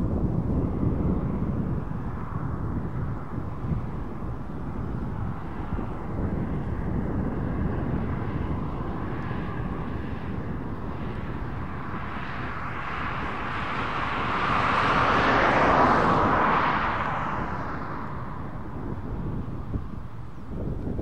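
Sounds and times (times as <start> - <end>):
rushing noise: 11.6 - 19.1.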